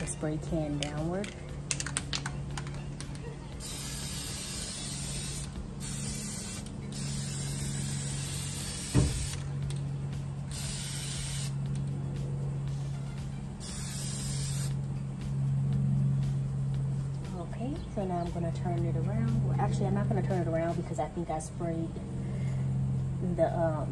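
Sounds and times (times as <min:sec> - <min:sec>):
steady low hum: 0:00.0 - 0:23.9
aerosol can spraying: 0:03.6 - 0:09.4, 0:10.5 - 0:11.6, 0:13.6 - 0:14.8.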